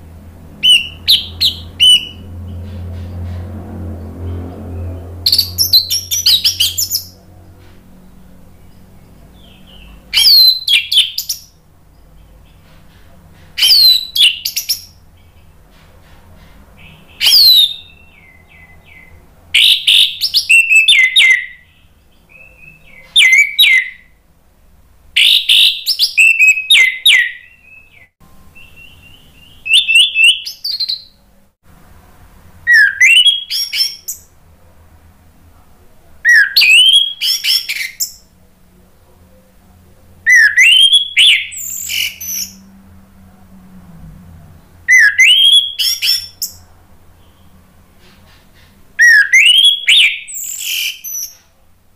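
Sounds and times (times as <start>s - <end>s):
thrush singing: 0.0s - 11.4s.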